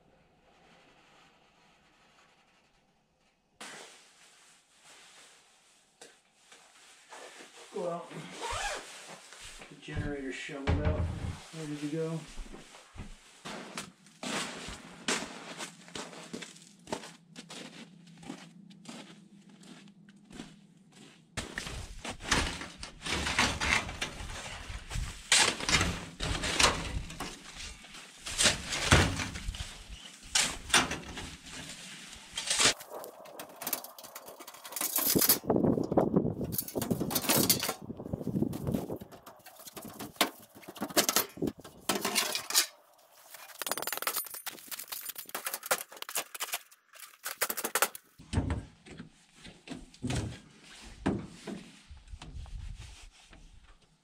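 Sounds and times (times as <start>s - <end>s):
snow shovel scraping packed snow: 13.4s - 16.5s.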